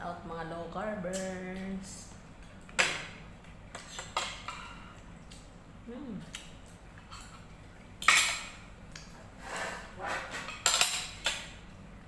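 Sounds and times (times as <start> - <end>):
cutlery clinking on plates: 10.1 - 11.4.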